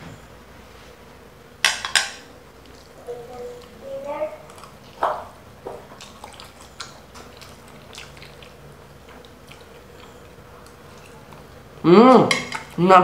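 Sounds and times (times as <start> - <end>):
chewing spaghetti: 2.6 - 11.8.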